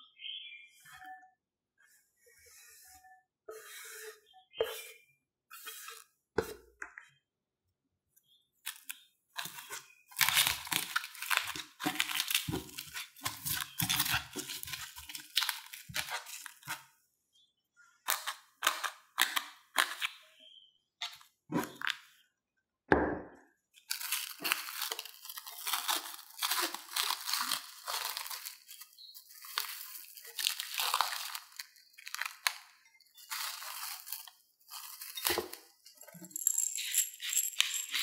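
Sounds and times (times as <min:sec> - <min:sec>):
potato scraped off cutting board: 0:02.4 - 0:06.6.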